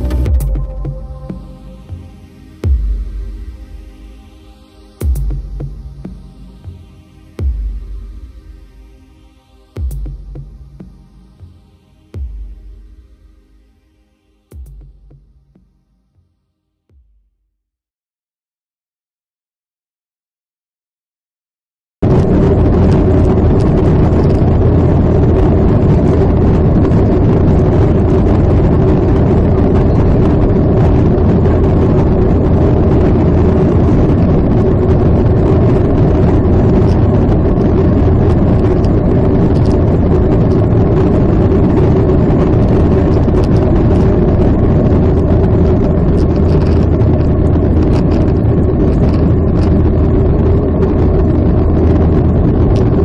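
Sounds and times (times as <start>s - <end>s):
jet engine drone: 0.0s - 15.8s, 22.0s - 53.0s
rushing air: 0.0s - 15.8s
deep hum: 0.0s - 16.2s, 22.0s - 53.0s
steady mid-pitched tone: 0.0s - 16.3s.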